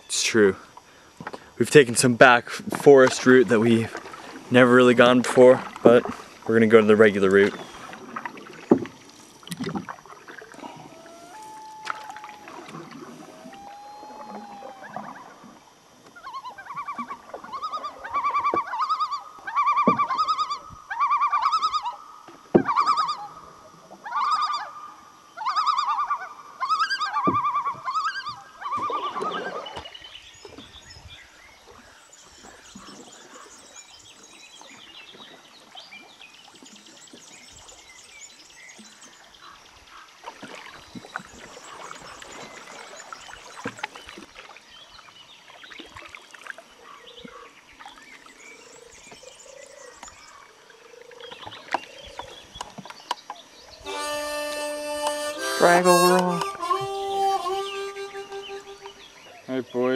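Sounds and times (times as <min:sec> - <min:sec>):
trilling animal call: 0:10.6 - 0:15.4, 0:16.2 - 0:22.0, 0:22.6 - 0:23.4, 0:24.0 - 0:29.8, 0:53.8 - 0:59.4.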